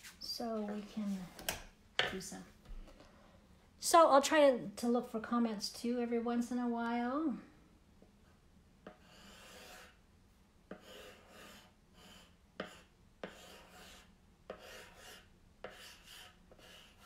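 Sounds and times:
pencil scratching on laminate: 8.2 - 10.0, 10.7 - 17.0.

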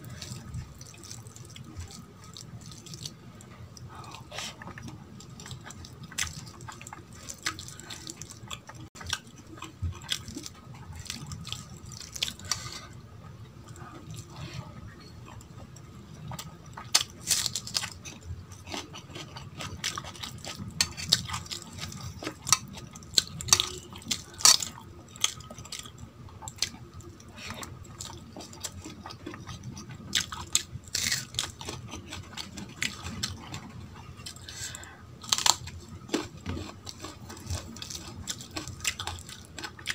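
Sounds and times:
hand squishing wet food: 0.0 - 12.9
chewing: 0.1 - 13.0, 13.6 - 39.9.

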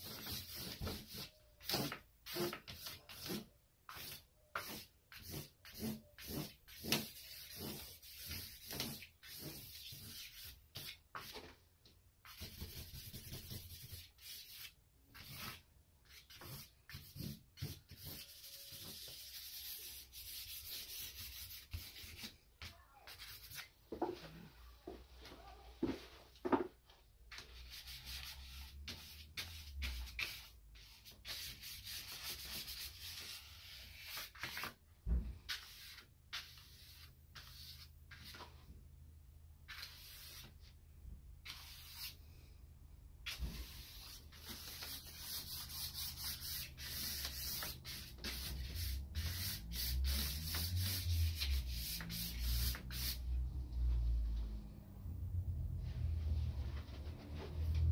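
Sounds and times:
charcoal scratching on paper: 0.0 - 11.4, 12.2 - 22.3, 27.6 - 34.7, 35.5 - 38.4, 41.4 - 42.2, 43.3 - 53.2.

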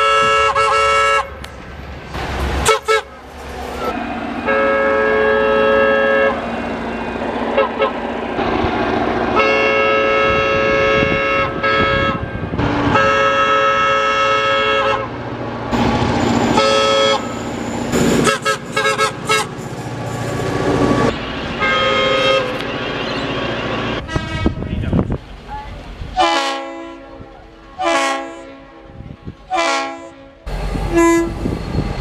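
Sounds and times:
locomotive air horn blasts: 0.0 - 1.4, 2.6 - 3.2, 4.4 - 6.5, 7.5 - 8.0, 9.3 - 15.1, 16.5 - 17.4, 18.2 - 19.6, 21.6 - 22.6, 23.4 - 24.7, 26.2 - 31.4
rumble of approaching train: 0.0 - 32.0.

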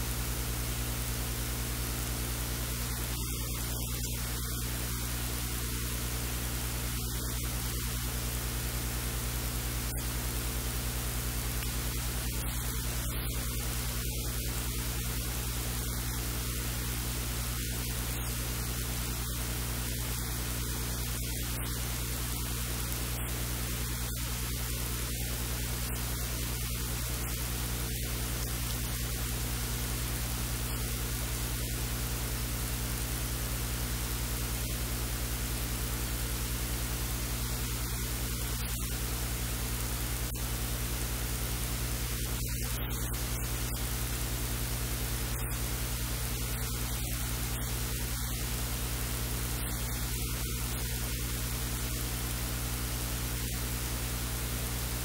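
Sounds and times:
low mains hum: 0.0 - 55.0
static hiss: 0.0 - 55.0.

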